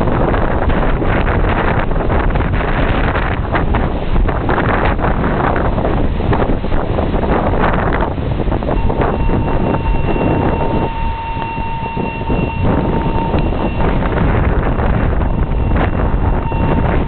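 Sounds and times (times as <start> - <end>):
diesel locomotive rumbling: 0.0 - 17.0
wind buffeting microphone: 0.0 - 17.0
steady high tone: 8.7 - 17.0.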